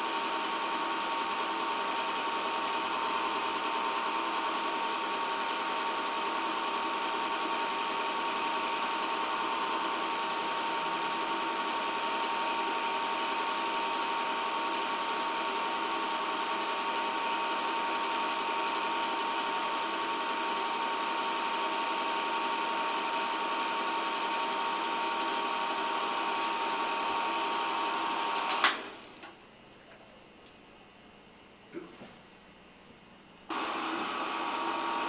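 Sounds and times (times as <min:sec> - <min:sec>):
film projector running: 0:00.0 - 0:29.3, 0:33.4 - 0:35.0
projector whine: 0:00.0 - 0:35.0
projector stopping with a click: 0:28.4 - 0:29.4.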